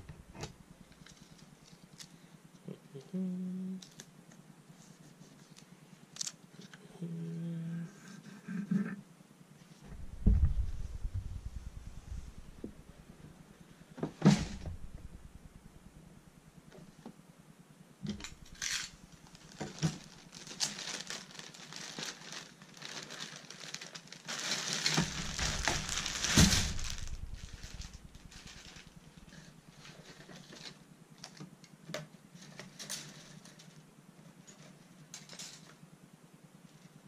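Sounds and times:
plastic bag crinkling: 9.9 - 12.8, 18.1 - 30.8.

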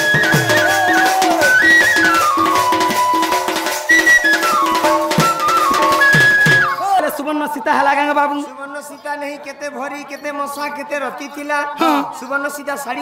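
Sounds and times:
bamboo flute folk melody: 0.0 - 7.0.

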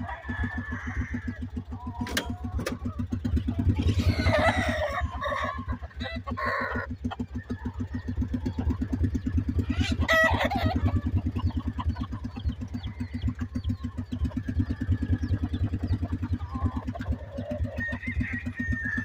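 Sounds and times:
rooster crowing: 0.0 - 3.0, 3.8 - 8.6, 9.6 - 11.1, 17.4 - 19.0
chickens clucking: 0.0 - 19.0
small engine running: 0.0 - 19.0.

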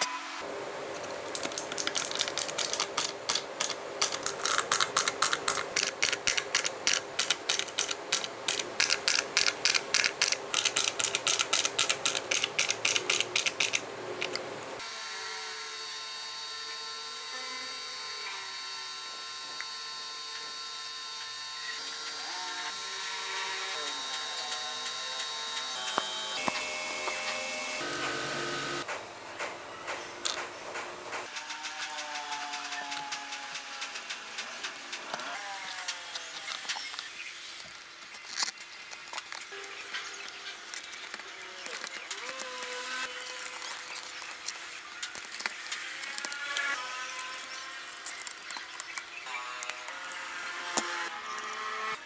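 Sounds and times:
screwdriver ratcheting clicks: 1.4 - 14.4
steady hum: 21.0 - 31.3.

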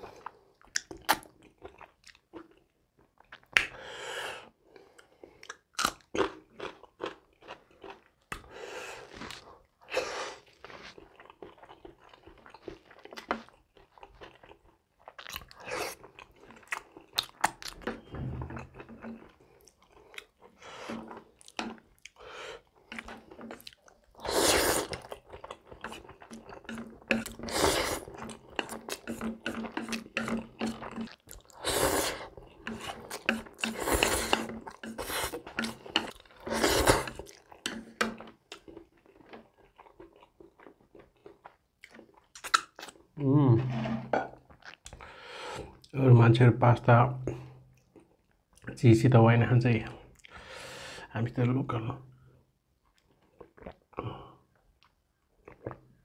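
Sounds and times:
person chewing food: 0.0 - 46.0, 50.0 - 50.6, 52.8 - 56.0
wet mouth clicks: 42.4 - 43.0.

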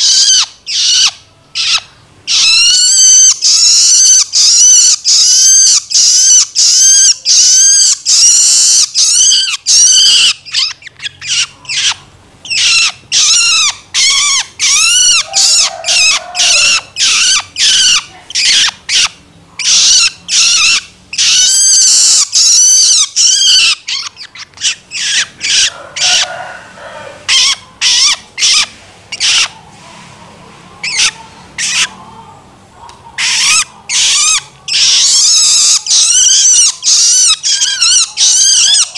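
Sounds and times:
young bird begging calls: 0.0 - 29.6.

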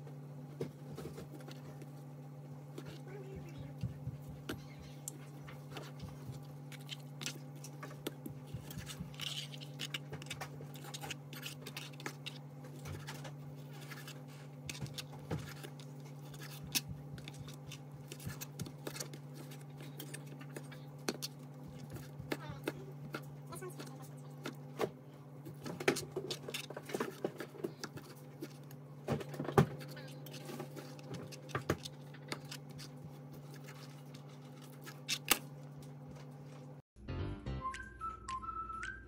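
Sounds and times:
steady low hum: 0.0 - 36.8.

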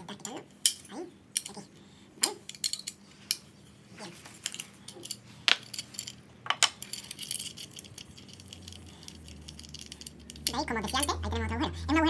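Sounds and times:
light metal clicks and clinks: 4.4 - 11.2.

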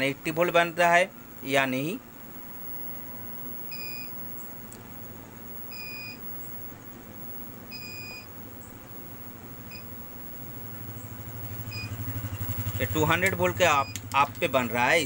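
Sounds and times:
faint steady hum: 0.0 - 15.0
high electronic beep: 2.6 - 4.5, 5.5 - 6.7, 7.3 - 8.3, 11.5 - 12.8.

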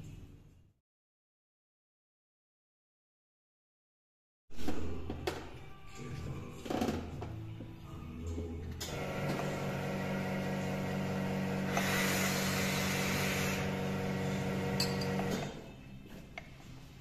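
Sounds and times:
espresso machine humming: 9.0 - 15.5
espresso machine hiss: 9.4 - 15.4.

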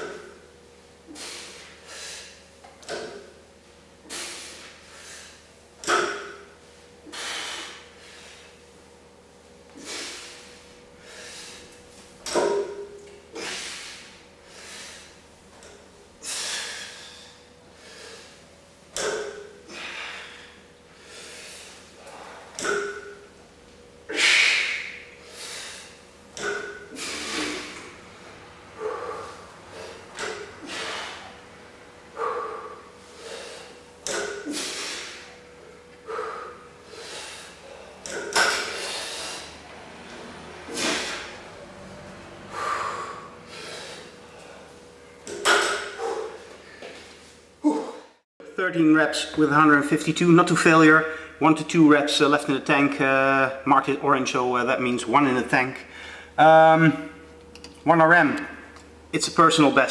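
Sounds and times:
person breathing hard: 16.2 - 18.4, 19.6 - 22.6, 28.7 - 31.4, 32.1 - 35.4, 36.0 - 39.6, 42.5 - 44.8, 45.8 - 47.0, 55.8 - 56.4
short grunts: 47.6 - 48.2.

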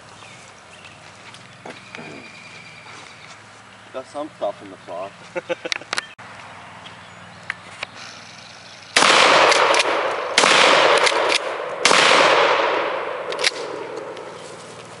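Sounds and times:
shotgun blasts with echo: 9.0 - 14.3.

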